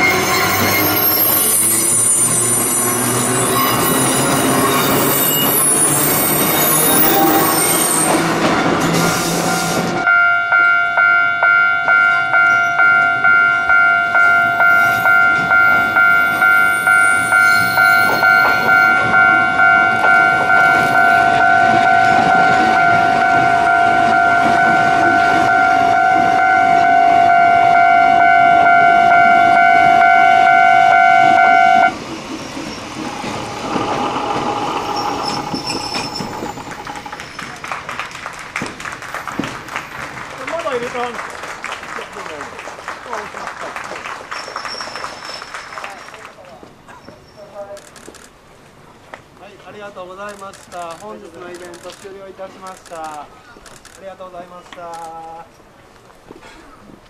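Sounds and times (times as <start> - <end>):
train noise: 0.0 - 57.0
electronic warning tone: 13.8 - 31.9, 33.1 - 37.2.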